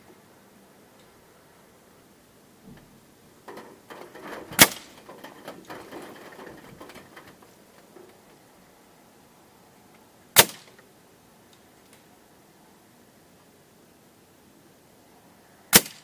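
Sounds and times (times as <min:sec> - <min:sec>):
handling clicks and rustles: 0:02.7 - 0:08.5
air rifle shot: 0:10.4 - 0:10.8, 0:15.7 - 0:16.0.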